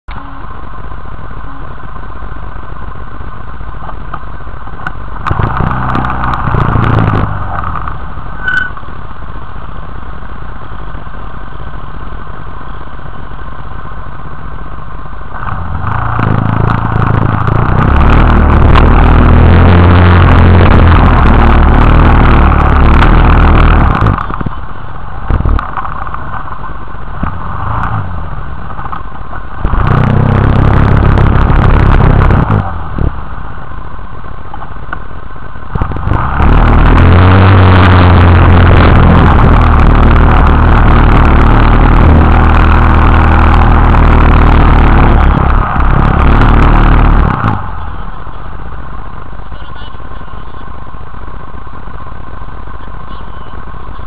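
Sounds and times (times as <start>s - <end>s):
quad bike engine revving: 5.2s - 8.7s, 15.3s - 24.6s, 25.2s - 33.3s, 35.7s - 48.5s.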